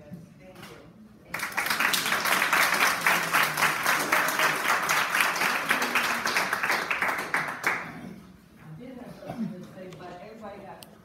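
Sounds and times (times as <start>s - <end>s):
audience applauding: 1.3s - 8.0s.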